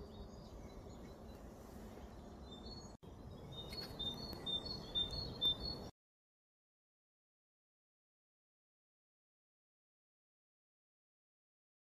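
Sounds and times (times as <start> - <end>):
small bird chirping: 0.0 - 5.9.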